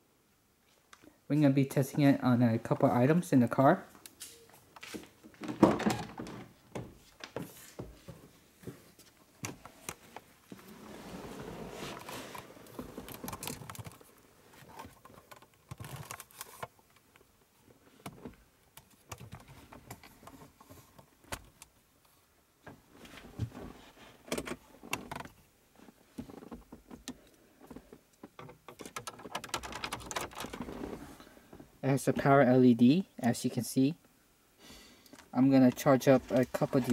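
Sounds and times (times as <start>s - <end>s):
rustling: 3.9s - 17.0s
clicks and rattles: 28.1s - 30.8s.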